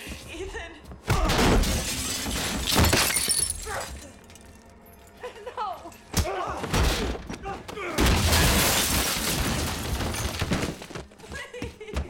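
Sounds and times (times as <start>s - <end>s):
glass shattering: 1.5s - 5.1s, 8.0s - 10.6s.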